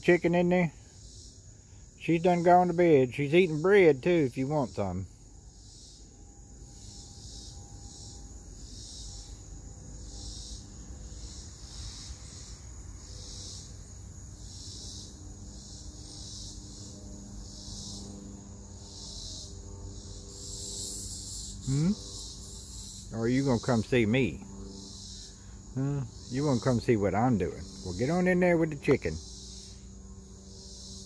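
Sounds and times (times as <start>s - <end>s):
insects shrilling: 0.0s - 31.0s
faint low hum: 15.1s - 30.9s.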